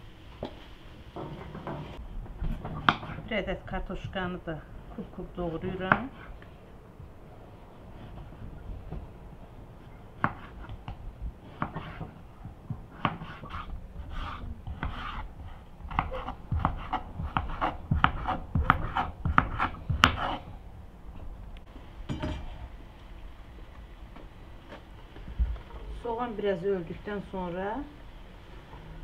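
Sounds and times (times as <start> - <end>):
knife chopping on wooden board: 10.2 - 10.6, 12.9 - 13.7, 15.9 - 20.4.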